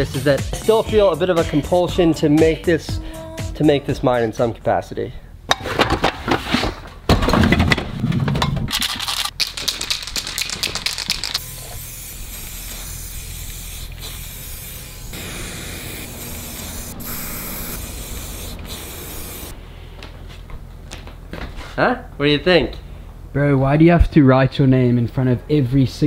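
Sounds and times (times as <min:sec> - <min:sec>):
spray paint can hissing: 0:09.4 - 0:19.6.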